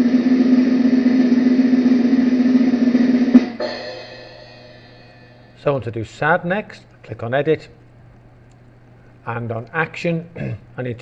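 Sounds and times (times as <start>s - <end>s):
snare drum roll: 0.0s - 5.5s
final drum hit ringing: 0.0s - 5.6s.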